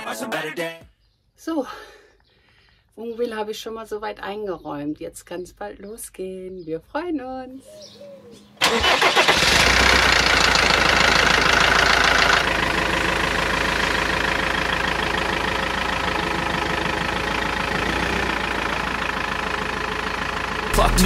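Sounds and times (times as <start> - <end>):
diesel engine idling: 8.4 - 21.0.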